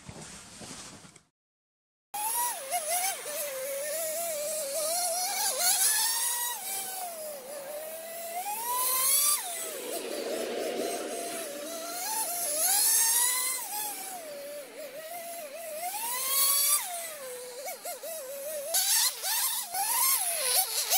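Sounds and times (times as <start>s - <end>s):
small glow engine whining: 2.3s - 20.9s.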